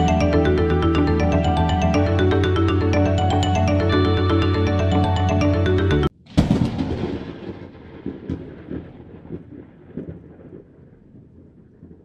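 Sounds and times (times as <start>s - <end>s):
background music: 0.0s - 6.1s
thunder-like boom rumbling: 6.3s - 12.0s.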